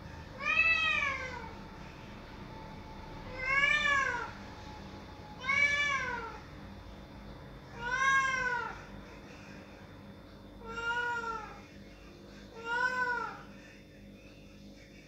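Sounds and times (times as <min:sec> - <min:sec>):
cat meowing: 0:00.4 - 0:01.5, 0:03.3 - 0:04.4, 0:05.4 - 0:06.4, 0:07.7 - 0:08.8, 0:10.6 - 0:11.6, 0:12.6 - 0:13.4.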